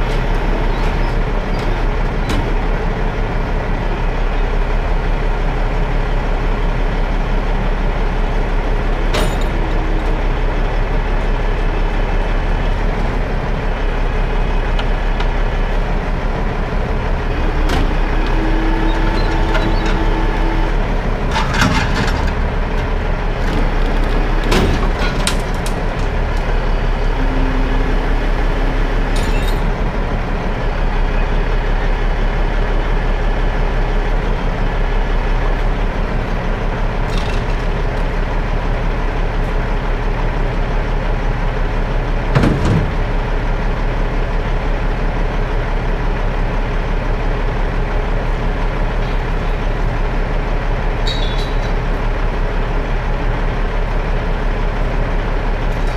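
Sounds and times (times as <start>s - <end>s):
diesel engine running: 0.0s - 55.9s.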